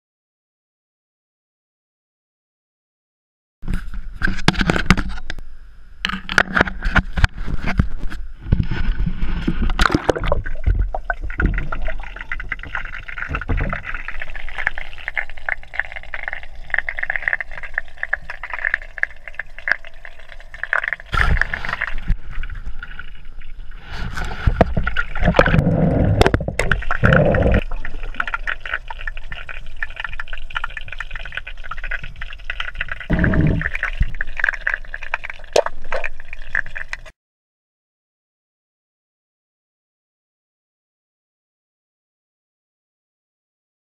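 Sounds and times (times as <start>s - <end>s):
water sloshing and gurgling: 6.1s - 37.1s.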